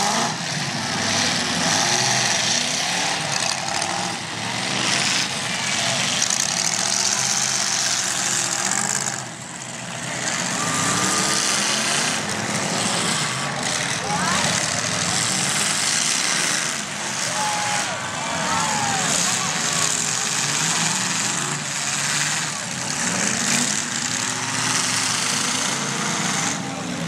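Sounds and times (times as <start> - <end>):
car engines idling and revving: 0.0 - 27.0.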